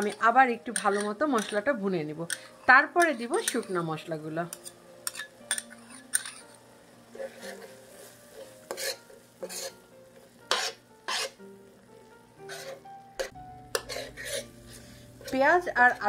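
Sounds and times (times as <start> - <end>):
spoon scraping paste in steel pan: 0.0 - 1.7, 8.3 - 9.8, 10.5 - 11.4, 12.5 - 15.4.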